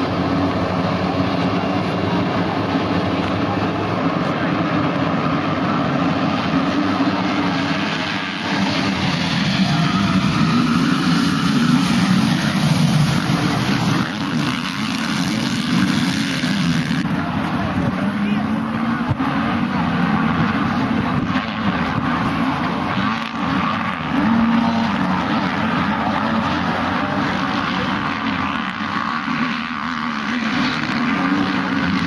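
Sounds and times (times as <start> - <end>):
motocross bikes revving: 0.0 - 32.0.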